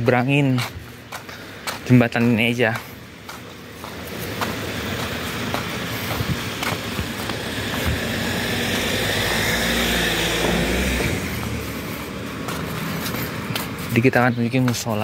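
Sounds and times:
car passing by: 3.9 - 14.0.

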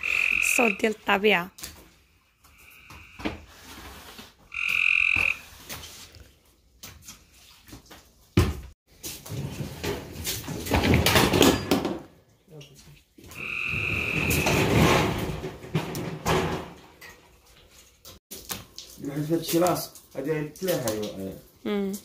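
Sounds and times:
frog trilling: 0.0 - 1.0, 4.5 - 5.4, 13.3 - 14.4.

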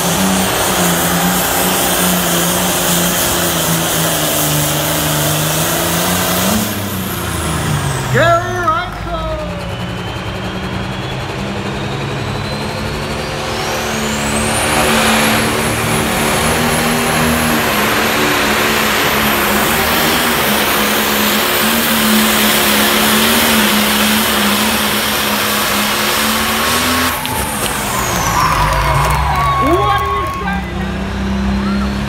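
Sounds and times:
diesel engine at full throttle: 0.0 - 32.0
turbo whine: 7.1 - 28.8.

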